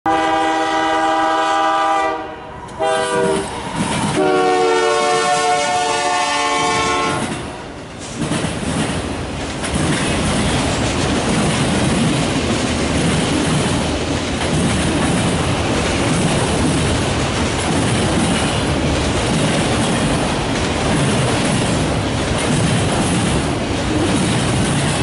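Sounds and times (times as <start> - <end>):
locomotive air horn blasts: 0.1 - 3.6, 4.2 - 7.3
train rumbling past: 0.1 - 25.0
wheels clacking on rails: 2.7 - 25.0.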